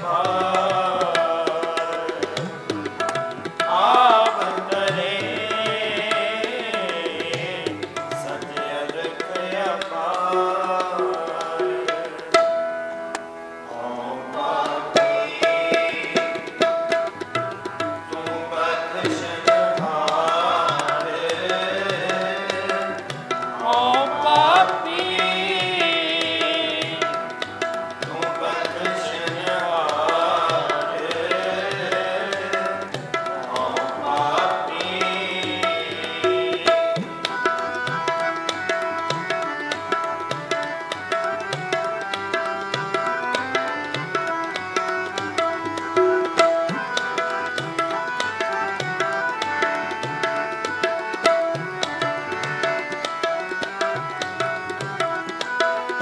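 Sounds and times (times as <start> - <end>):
men singing: 0.0 - 12.4, 13.7 - 40.0
harmonium: 0.0 - 56.0
tabla rhythm: 0.0 - 56.0.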